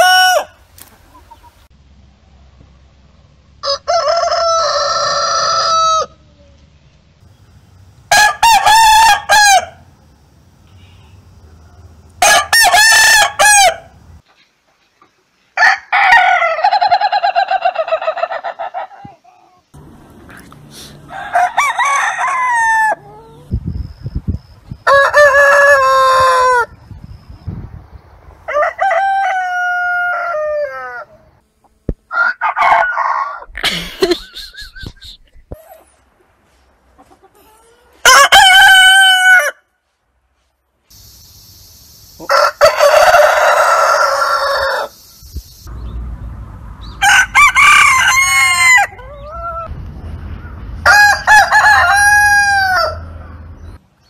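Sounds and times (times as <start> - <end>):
roosters crowing: 0.0 - 1.6, 3.5 - 6.3, 7.8 - 10.0, 11.3 - 14.2, 15.6 - 19.1, 19.7 - 23.6, 24.7 - 26.9, 28.3 - 31.4, 32.0 - 35.8, 37.0 - 39.7, 42.2 - 45.9, 46.8 - 53.8.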